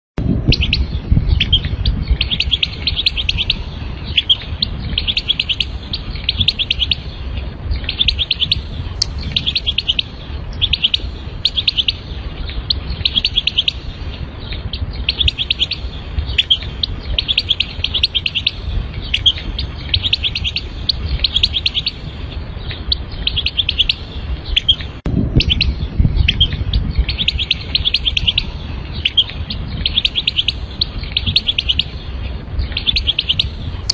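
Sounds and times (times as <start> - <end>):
low rumble: 0.2 - 33.9
goldfinch singing: 0.4 - 33.9.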